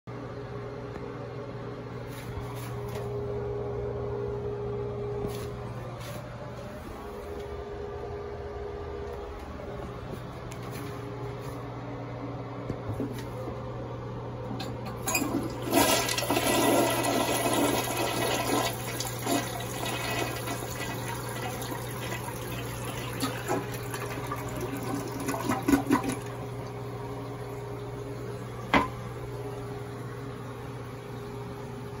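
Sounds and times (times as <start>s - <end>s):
steady low hum: 0.1s - 32.0s
toilet flushing: 14.8s - 29.2s
water gurgling down bowl: 15.1s - 26.7s.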